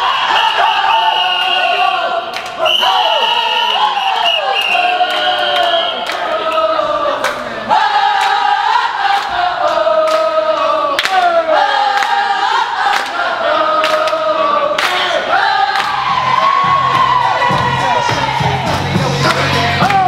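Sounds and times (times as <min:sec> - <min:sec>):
crowd singing and chanting: 0:00.0 - 0:20.0
hand claps: 0:11.0 - 0:11.3, 0:14.8 - 0:15.0, 0:15.7 - 0:16.0, 0:19.2 - 0:20.0.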